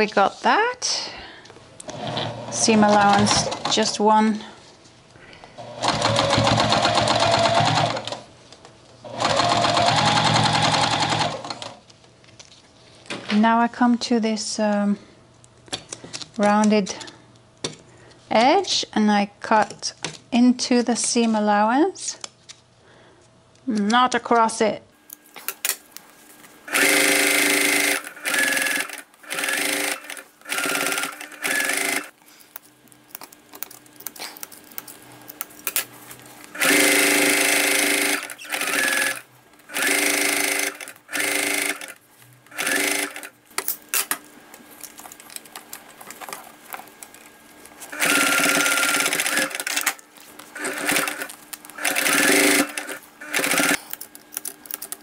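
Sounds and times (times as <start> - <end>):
sewing machine stitching: 1.9 - 3.9, 5.6 - 8.2, 9.1 - 11.8, 26.7 - 32.1, 36.5 - 43.3, 47.9 - 53.9.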